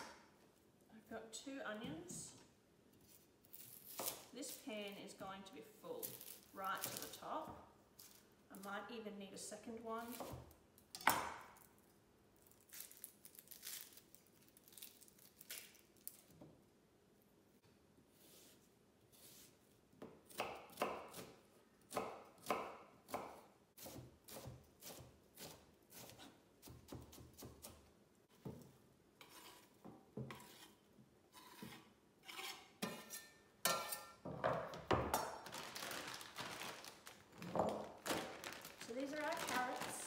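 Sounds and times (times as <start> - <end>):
knife chopping vegetables: 19.2 - 30.7.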